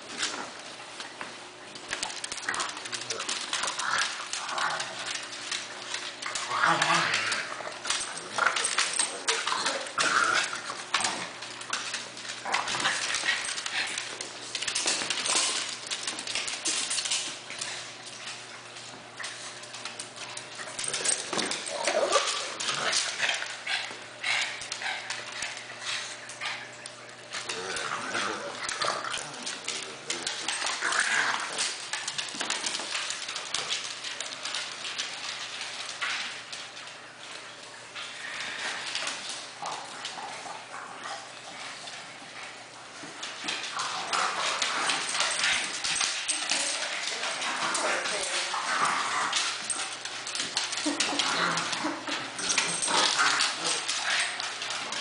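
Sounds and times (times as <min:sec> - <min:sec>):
claws scrabbling on wooden floor: 0:01.0 - 0:42.1, 0:43.0 - 0:55.0.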